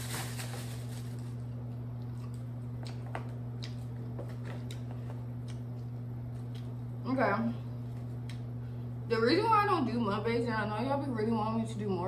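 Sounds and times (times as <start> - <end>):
plastic bag crinkling: 0.0 - 1.6
steady hum: 0.0 - 12.0.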